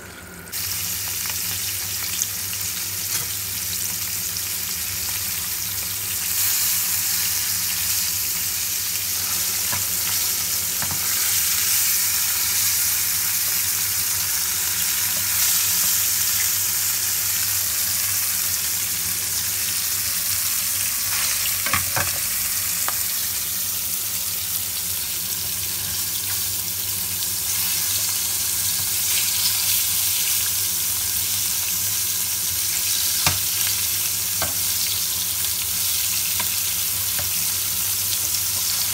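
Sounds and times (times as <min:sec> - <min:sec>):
fish sizzling in frying pan: 0:00.5 - 0:38.9.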